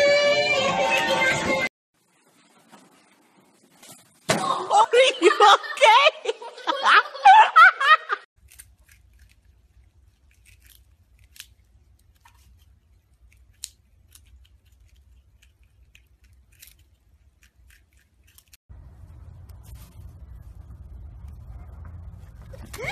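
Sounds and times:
animals crunching food: 8.4 - 20.6.

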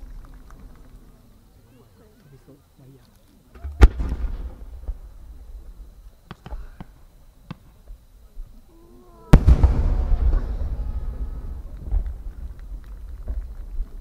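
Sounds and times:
firework boom with rumbling echo: 3.6 - 5.9, 9.3 - 14.0.

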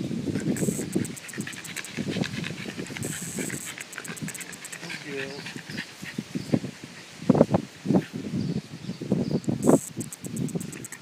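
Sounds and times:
dog sniffing at the ground: 0.4 - 6.7.

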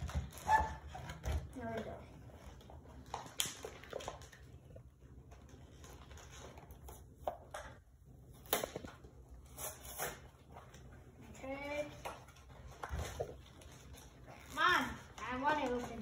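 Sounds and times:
sharp plastic crackles: 0.0 - 10.9
plastic packaging crinkling: 2.3 - 6.9.

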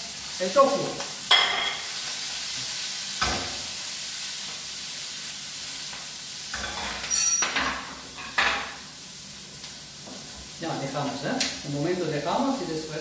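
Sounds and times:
food sizzling in oil: 0.0 - 13.0
metallic clatter of pan: 6.5 - 8.7.

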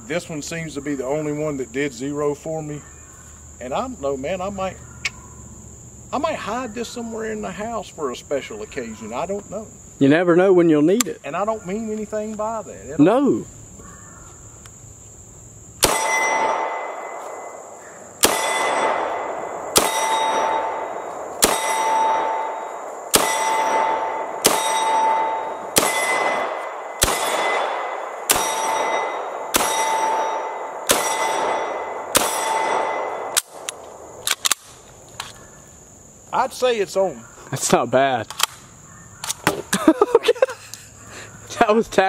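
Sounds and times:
steel target clanging: 15.8 - 17.5, 18.2 - 33.3
pistol shots: 15.8 - 17.6, 18.2 - 34.7.

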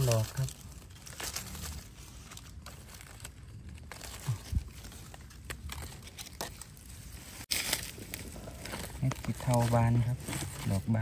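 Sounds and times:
dry leaves rustling and crackling: 0.0 - 11.0.

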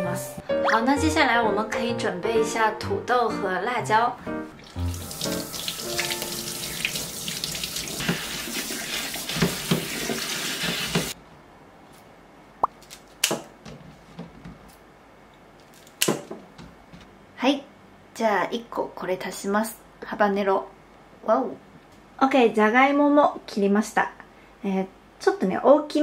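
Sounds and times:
tap water splashing in sink: 4.6 - 11.2.

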